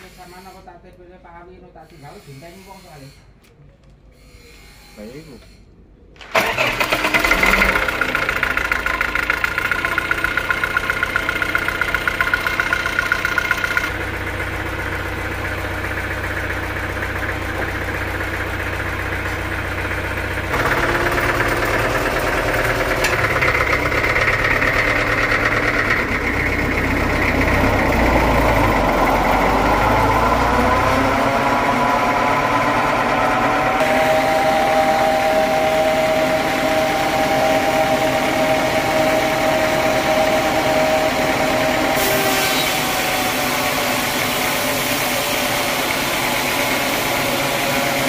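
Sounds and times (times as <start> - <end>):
sawmill engine running: 6.2 - 48.0
whine rising in pitch: 20.6 - 47.5.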